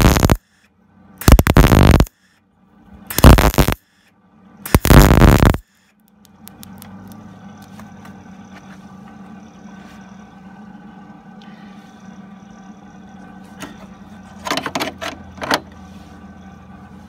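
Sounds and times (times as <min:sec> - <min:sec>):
welder arc crackling: 0:00.0 - 0:00.4, 0:01.2 - 0:02.1, 0:03.1 - 0:03.8, 0:04.6 - 0:05.6
faint low hum: 0:00.0 - 0:17.0.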